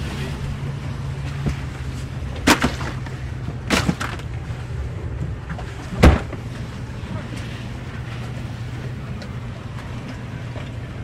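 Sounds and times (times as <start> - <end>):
boat outboard engines idling: 0.0 - 11.0
cooler knocks and thuds: 2.3 - 4.4, 5.2 - 6.5.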